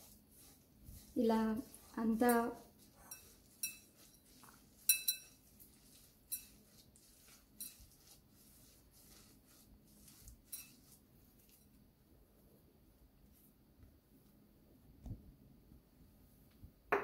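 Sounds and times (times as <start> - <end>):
flour rustling in bowl: 0.0 - 12.4
clinks against glass bowl: 3.0 - 3.9, 4.8 - 5.4.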